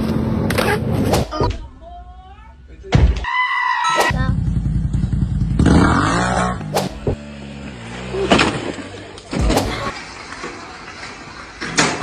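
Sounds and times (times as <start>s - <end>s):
scooter engine running: 4.1s - 6.5s
quad bike engine revving: 4.1s - 9.9s.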